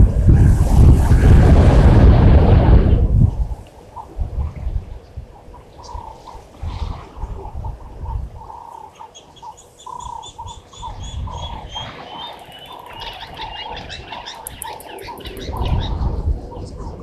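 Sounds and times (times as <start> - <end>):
low rumbling noise: 0.0 - 8.5
birds chirping: 3.6 - 17.0
bird high piping notes: 8.4 - 16.0
bird repeating low note: 8.5 - 16.0.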